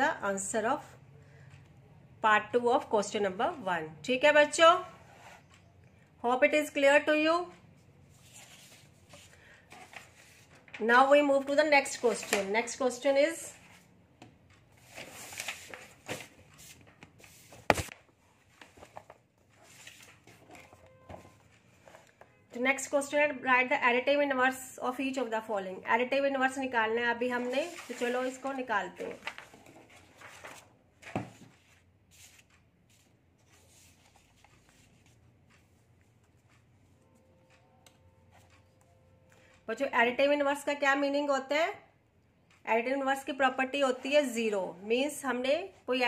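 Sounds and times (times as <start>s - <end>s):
paper rustling: 8.1s - 10.8s, 12.0s - 12.6s, 14.7s - 20.8s, 27.4s - 35.2s.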